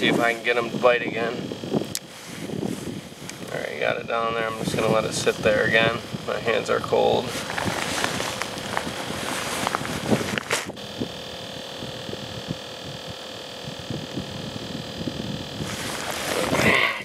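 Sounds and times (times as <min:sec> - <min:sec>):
steady electrical hum: 0:00.0 - 0:17.0
jacket fabric rustling: 0:07.3 - 0:10.8, 0:15.6 - 0:16.7.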